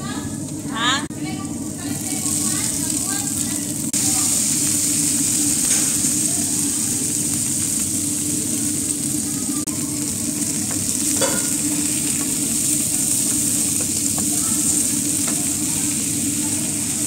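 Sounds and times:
vegetables sizzling in a pan: 0:00.0 - 0:17.0
wooden spatula knocking on pan: 0:13.7 - 0:15.5.

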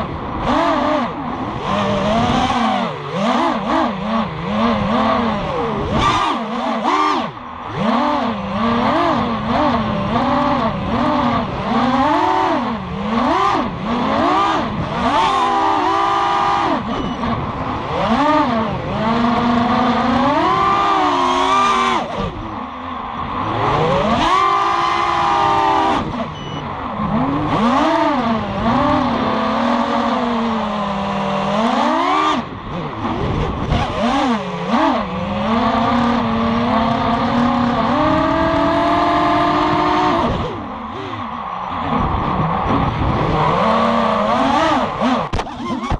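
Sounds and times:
drone motors whining: 0:00.0 - 0:45.9.

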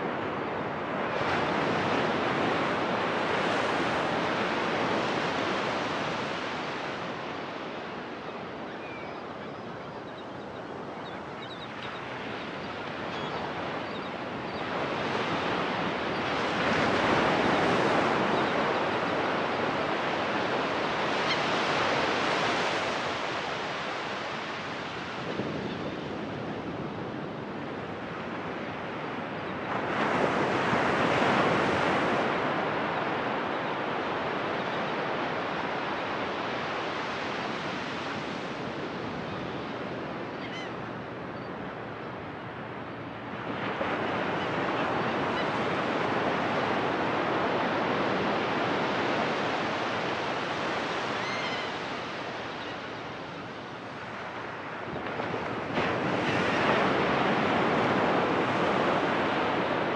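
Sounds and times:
ocean surf breaking on sand: 0:42.6 - 0:59.9.

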